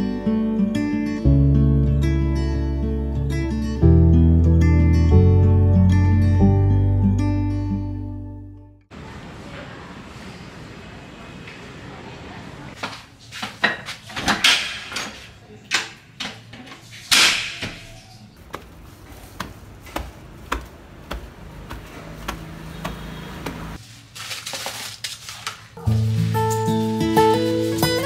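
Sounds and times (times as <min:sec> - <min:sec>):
plastic bags rustling: 0:18.4 - 0:28.0.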